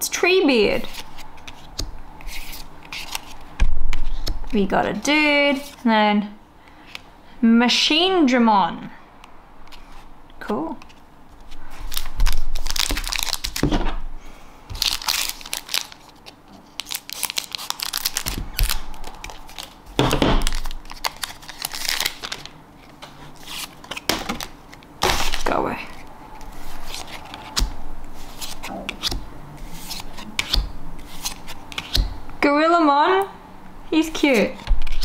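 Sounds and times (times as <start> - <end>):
trading cards swishing and snapping: 0.8 - 4.6, 20.4 - 32.2, 34.2 - 35.0
cards rustling: 0.8 - 4.7, 5.5 - 5.8, 10.7 - 13.7, 14.7 - 32.1, 34.2 - 35.0.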